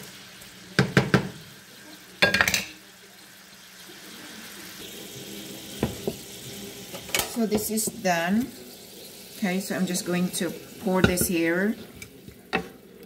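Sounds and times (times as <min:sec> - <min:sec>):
pan sizzling: 0:00.0 - 0:13.0
wooden spoon knocking in pan: 0:00.8 - 0:01.4.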